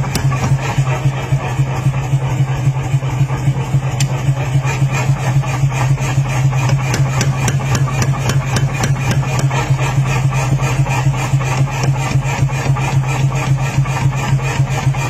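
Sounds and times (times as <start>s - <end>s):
hammer ram striking hot steel: 0.0s - 0.8s, 6.6s - 9.7s
power hammer motor hum: 0.0s - 15.0s.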